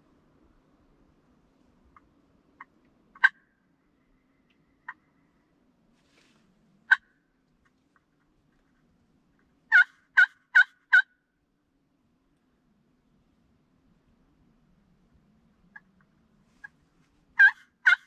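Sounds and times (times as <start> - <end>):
friction turkey call yelps: 2.0 - 3.6, 6.9 - 7.2, 9.7 - 11.2, 17.4 - 18.0.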